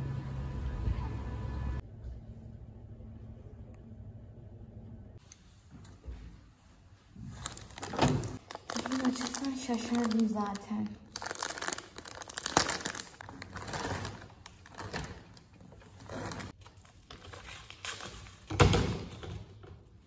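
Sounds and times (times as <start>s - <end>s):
plastic bag crinkling: 7.2s - 18.5s.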